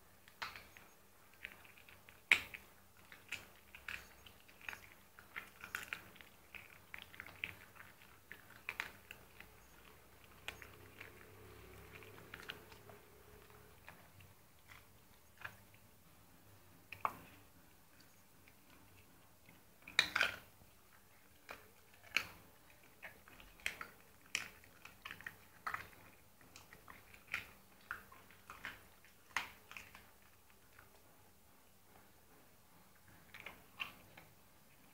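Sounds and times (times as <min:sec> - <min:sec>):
dog chewing and biting: 0:00.2 - 0:31.2, 0:32.9 - 0:34.9.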